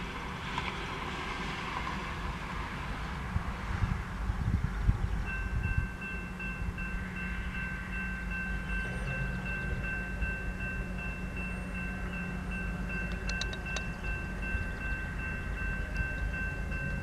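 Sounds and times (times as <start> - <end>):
railroad crossing bell ringing: 5.2 - 17.0.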